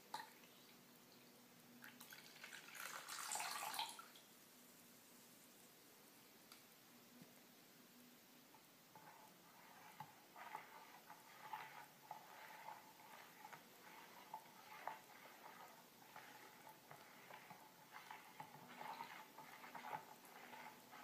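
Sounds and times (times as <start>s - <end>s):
metal spoon stirring liquid: 8.9s - 21.0s.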